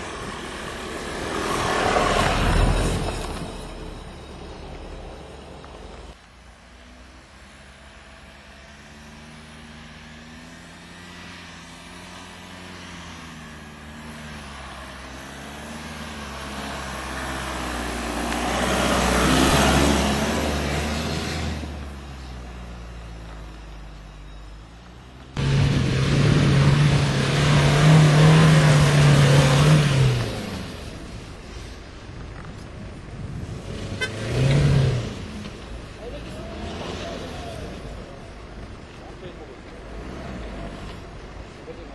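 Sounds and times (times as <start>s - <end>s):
car engine revving: 25.4s - 31.1s, 33.6s - 38.1s.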